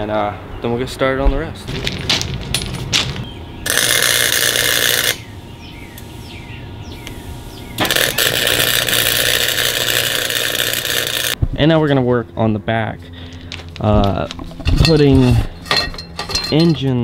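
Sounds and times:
welder arc crackling: 3.6s - 5.2s, 7.8s - 11.4s.

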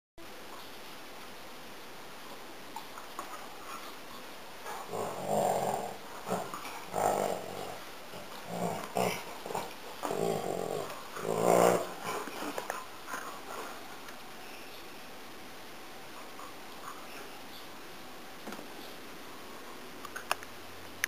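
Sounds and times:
dogs play-growling: 4.6s - 14.2s.

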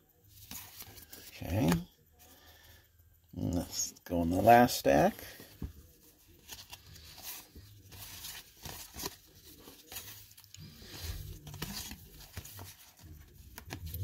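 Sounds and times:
cards sliding and snapping: 6.5s - 14.0s.

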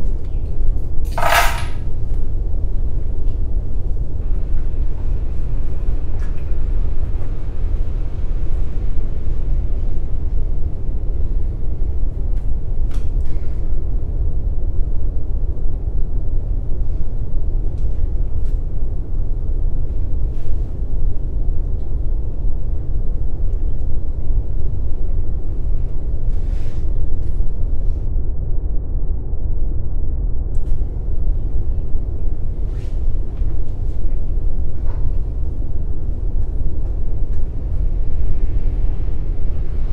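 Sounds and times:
low rumble: 0.0s - 39.9s
metallic clink: 1.1s - 1.8s.

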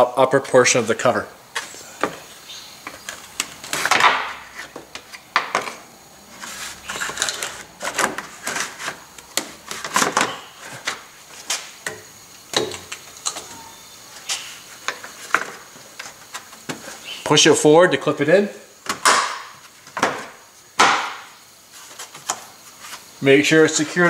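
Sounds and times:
plastic scraping rubbing and clicking: 6.4s - 11.0s.

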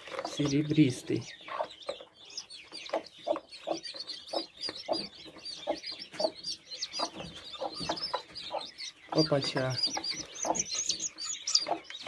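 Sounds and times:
chicks peeping: 0.0s - 12.0s
hen clucking: 0.0s - 12.0s.

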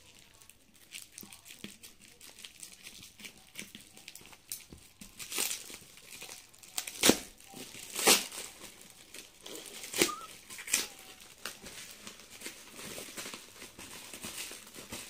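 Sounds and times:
plastic packing crinkling: 0.0s - 15.0s.

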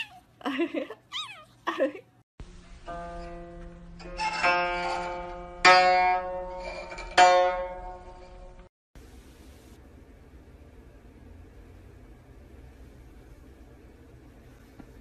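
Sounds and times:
zither strings strummed: 2.6s - 8.7s.

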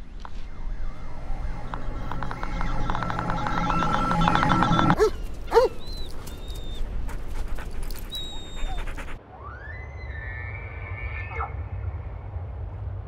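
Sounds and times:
thin high whistles: 0.5s - 9.2s
dog whining: 4.8s - 9.2s
faint clicks: 5.0s - 9.1s.

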